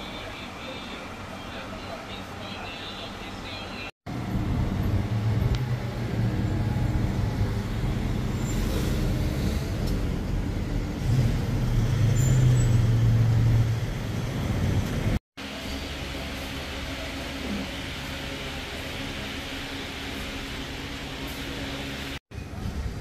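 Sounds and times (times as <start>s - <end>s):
car engines droning: 4.1s - 23.0s.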